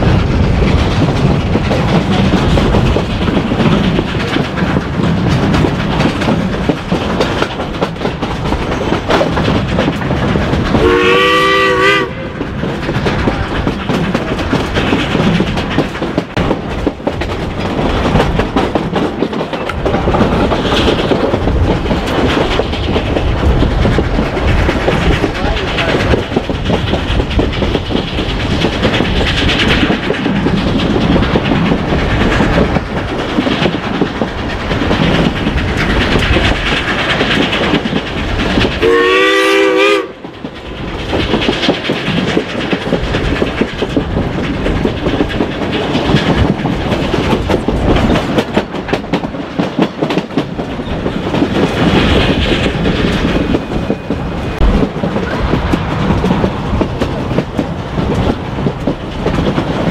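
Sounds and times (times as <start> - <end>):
train rumble: 0.0 - 59.9
wheels clattering over rail joints: 0.0 - 59.9
steam whistle blast: 10.8 - 12.3, 38.8 - 40.2.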